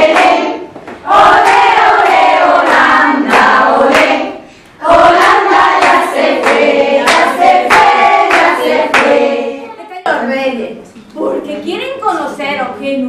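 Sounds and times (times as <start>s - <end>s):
hands clapping: 0.0s - 4.2s, 5.2s - 9.3s
group singing: 0.0s - 10.2s.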